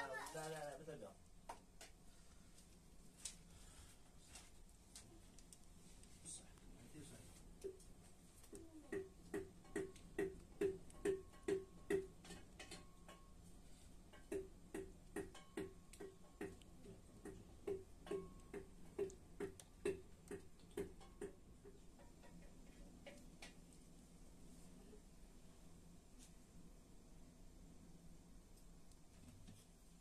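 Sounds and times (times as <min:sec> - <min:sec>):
stick pounding in metal jug: 0:08.9 - 0:13.3, 0:17.2 - 0:22.6.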